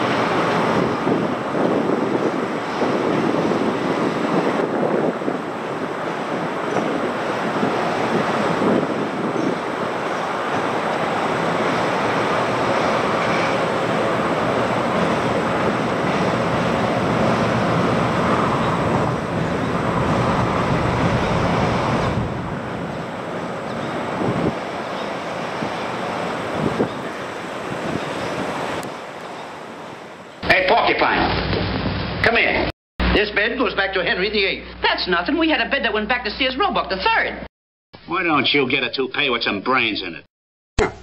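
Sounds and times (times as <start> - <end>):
wind on microphone: 0.0 - 29.1
train wheels rumbling on rail: 0.0 - 30.4.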